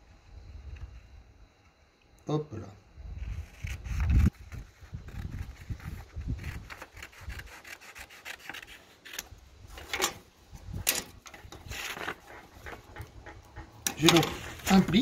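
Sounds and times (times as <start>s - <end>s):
paper rustling: 3.4s - 10.1s, 11.3s - 13.2s
scissors snipping paper: 5.1s - 9.3s.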